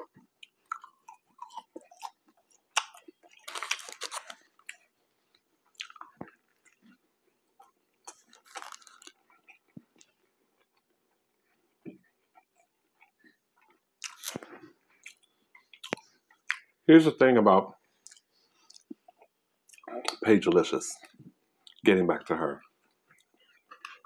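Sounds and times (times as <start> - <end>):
man chewing and crunching food: 0.0 - 16.9, 17.8 - 20.2, 21.0 - 21.9, 22.6 - 24.0.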